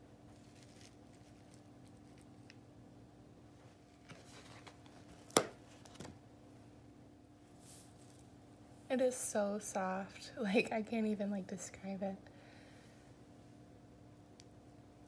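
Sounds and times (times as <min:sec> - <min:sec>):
faint handling rustling: 0:00.3 - 0:02.5, 0:03.5 - 0:06.2, 0:07.5 - 0:08.4.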